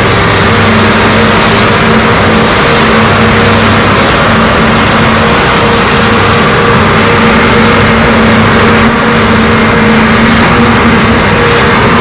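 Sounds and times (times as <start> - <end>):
excavator diesel engines running: 0.0 - 12.0.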